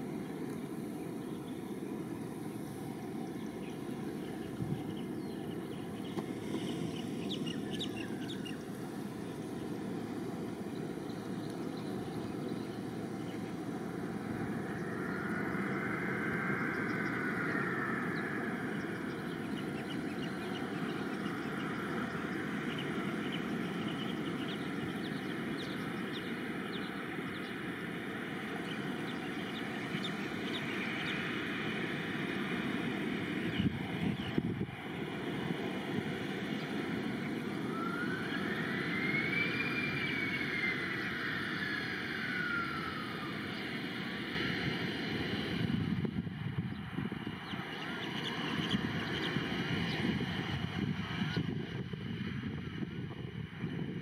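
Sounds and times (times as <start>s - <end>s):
jet engine whine: 0.0s - 54.0s
jet engines rumbling: 0.0s - 54.0s
faint bird chirps: 0.9s - 32.6s, 36.5s - 44.0s.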